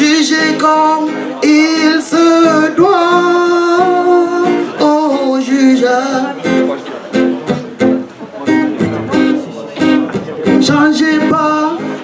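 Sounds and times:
man singing: 0.0 - 6.6, 10.4 - 12.0
strummed acoustic guitar: 0.0 - 12.0.

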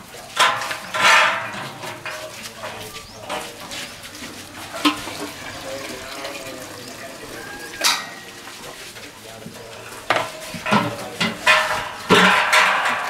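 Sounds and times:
milk pouring and splashing: 3.2 - 12.2
sharp metallic knocks: 10.1 - 13.0.

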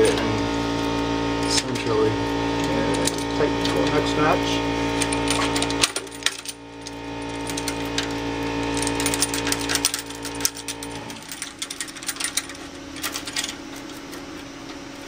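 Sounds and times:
steady hum: 0.0 - 15.0
chain links rattling: 5.0 - 8.1, 8.7 - 14.2.

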